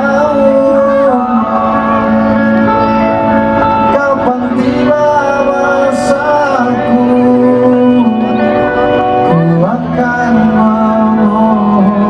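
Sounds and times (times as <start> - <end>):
two men singing a duet: 0.0 - 1.9, 3.8 - 8.6, 9.2 - 12.0
backing music: 0.0 - 12.0.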